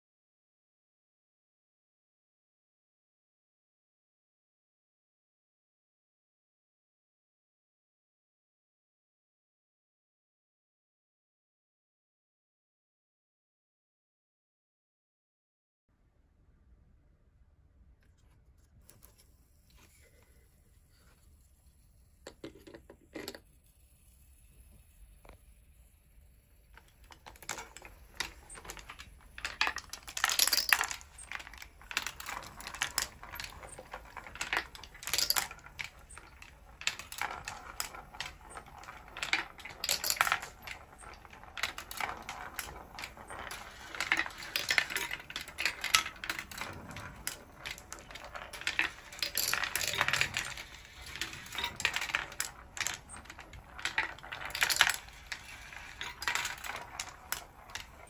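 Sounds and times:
marbles rolling and clicking: 0:18.9 - 0:58.0
marbles clattering: 0:19.2 - 0:58.0.

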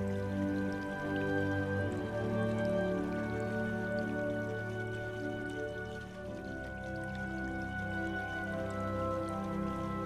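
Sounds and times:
soft slow background music: 0:00.0 - 0:10.0.

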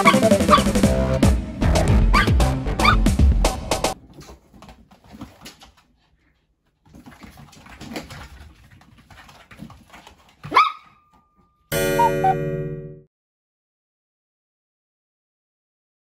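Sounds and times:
sharp dog yelp: 0:00.0 - 0:00.7, 0:02.1 - 0:03.0, 0:10.4 - 0:11.1
dog scuffling and clicking: 0:04.0 - 0:11.5.

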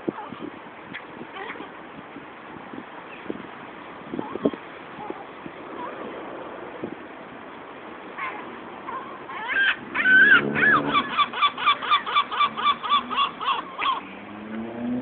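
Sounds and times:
gull calling: 0:08.2 - 0:14.2.

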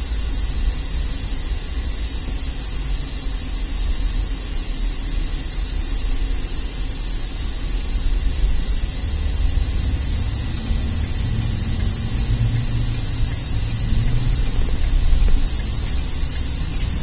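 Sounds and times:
road and tyre noise: 0:08.3 - 0:17.0.

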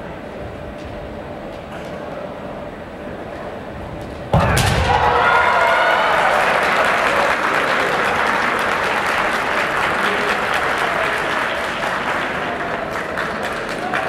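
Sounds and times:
audience applauding: 0:04.8 - 0:14.0.

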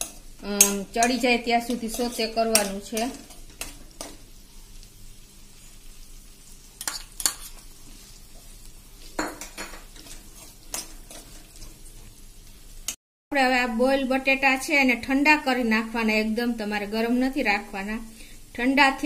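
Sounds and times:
spoon scraping vegetables in pan: 0:00.0 - 0:04.6, 0:06.7 - 0:12.6
soft sizzling in oil: 0:00.0 - 0:13.0, 0:13.8 - 0:19.0.

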